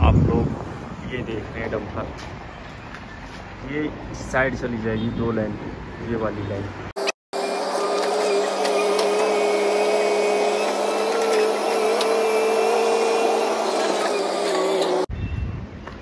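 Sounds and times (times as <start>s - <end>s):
excavator engine whine: 7.0s - 15.1s.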